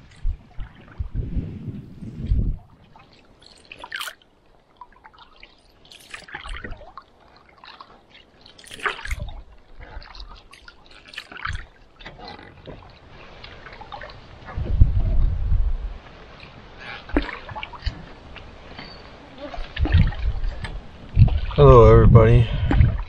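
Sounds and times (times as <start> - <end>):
paddle strokes in water: 0.0 - 23.0
water dripping off paddle: 2.8 - 14.6, 16.2 - 21.6.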